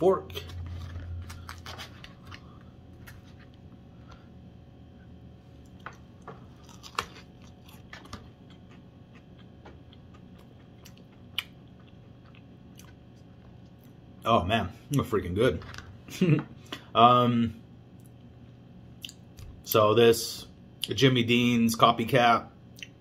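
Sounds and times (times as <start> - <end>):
person chewing food: 5.5 - 14.0.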